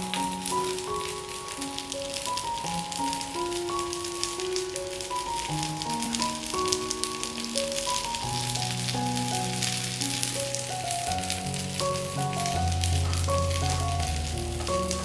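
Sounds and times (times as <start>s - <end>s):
rolls sizzling in fat: 0.0s - 15.0s
background music with bass: 11.2s - 15.0s.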